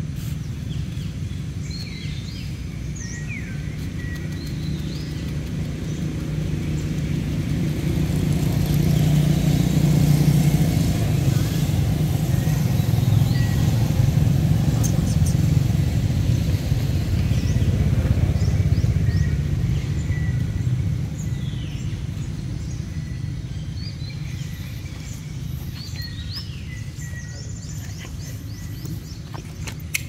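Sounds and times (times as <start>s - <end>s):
birds chirping: 0.0s - 30.0s.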